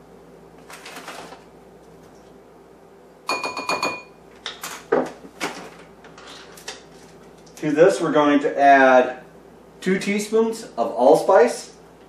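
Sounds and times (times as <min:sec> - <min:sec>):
plastic bag rustling: 0:00.6 - 0:01.5.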